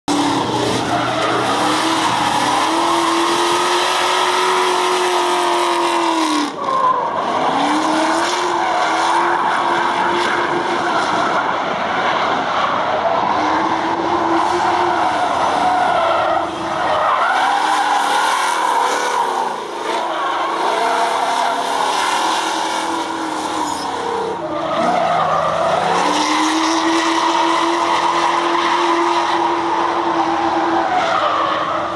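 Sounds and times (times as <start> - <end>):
car engine at high revs: 0.1 - 31.9.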